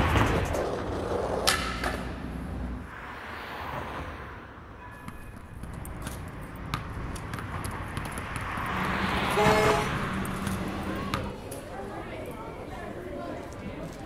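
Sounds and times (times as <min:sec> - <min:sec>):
skateboard clack: 0:00.0 - 0:02.2
skateboard wheels rolling on concrete: 0:00.0 - 0:04.2, 0:05.1 - 0:14.0.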